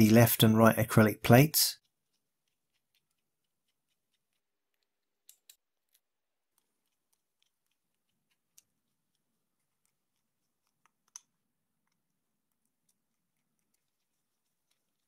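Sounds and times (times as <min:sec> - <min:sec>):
small hardware clicking and tapping: 0:04.7 - 0:06.0.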